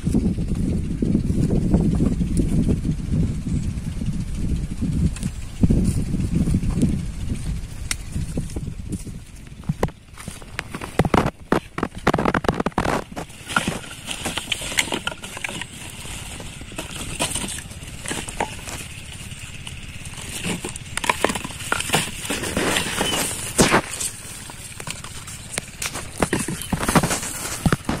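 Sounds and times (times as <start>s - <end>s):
plastic bottles crinkling and knocking: 9.6s - 28.0s
plastic sack rustling: 10.2s - 28.0s.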